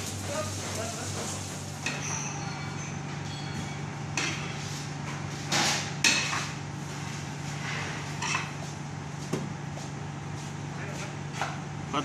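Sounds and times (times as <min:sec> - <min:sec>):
kitchen pans clanking and scraping: 0:01.0 - 0:04.6.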